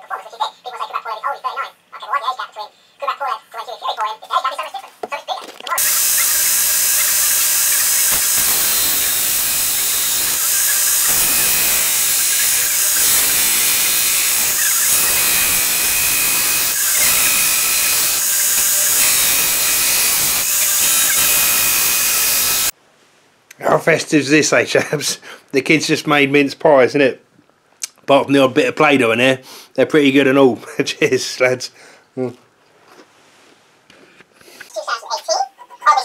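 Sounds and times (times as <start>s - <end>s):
belt grinder grinding steel: 5.8s - 22.7s.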